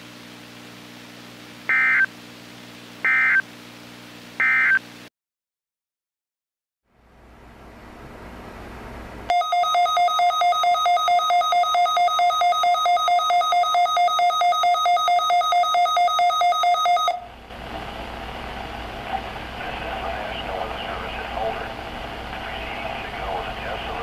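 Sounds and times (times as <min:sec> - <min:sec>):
rapid electronic alarm beeping: 0:01.7 - 0:02.1, 0:03.1 - 0:03.4, 0:04.4 - 0:04.8, 0:09.3 - 0:17.3
hissy radio broadcast audio: 0:17.4 - 0:24.0.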